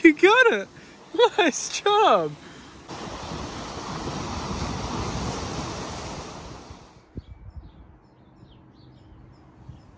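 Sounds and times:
surf washing on shore: 0:00.0 - 0:07.0
wind buffeting microphone: 0:02.7 - 0:08.6, 0:09.6 - 0:09.9.

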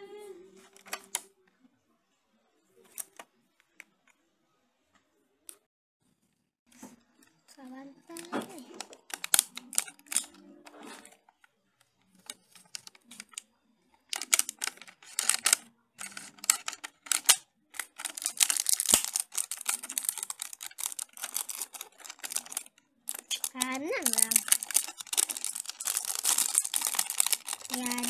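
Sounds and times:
plastic bag crinkling: 0:08.1 - 0:11.2, 0:12.1 - 0:13.4, 0:14.0 - 0:28.0.

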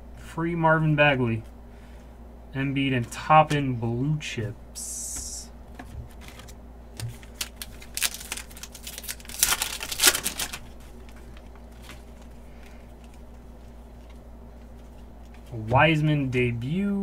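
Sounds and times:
faint steady hum: 0:00.0 - 0:17.0
foil wrapper crinkling: 0:06.1 - 0:15.6
foil wrapper tearing: 0:06.3 - 0:12.3.

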